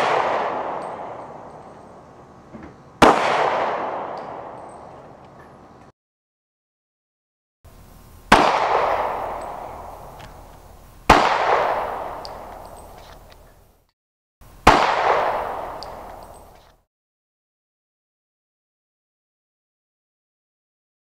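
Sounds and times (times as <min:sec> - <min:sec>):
gunshots with echo: 0:00.0 - 0:02.1, 0:03.0 - 0:05.2, 0:08.3 - 0:13.3, 0:14.6 - 0:16.7.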